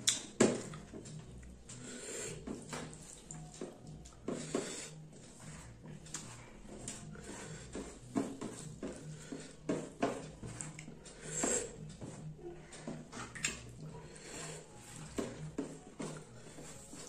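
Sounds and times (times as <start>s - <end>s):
wet chewing and lip smacks: 0.0s - 0.8s.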